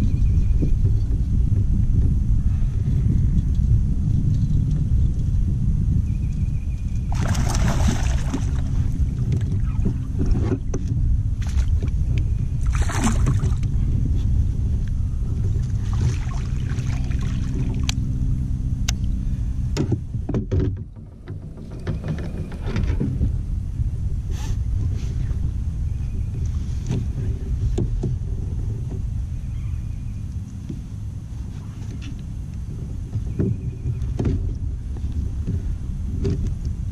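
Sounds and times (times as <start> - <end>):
low rumble: 0.0 - 36.9
fish splashing in water: 7.1 - 9.0, 12.6 - 13.6.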